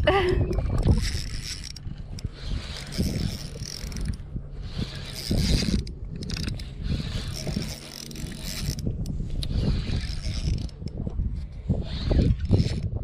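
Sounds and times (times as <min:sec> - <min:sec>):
fishing reel whirring: 0:00.0 - 0:13.0.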